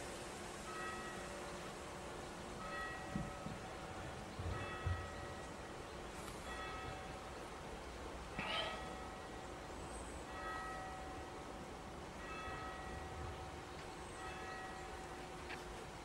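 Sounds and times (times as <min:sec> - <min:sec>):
church bell striking: 0:00.7 - 0:01.5, 0:02.6 - 0:05.8, 0:06.4 - 0:07.7, 0:08.7 - 0:09.6, 0:10.2 - 0:15.4
knock: 0:03.1 - 0:03.6.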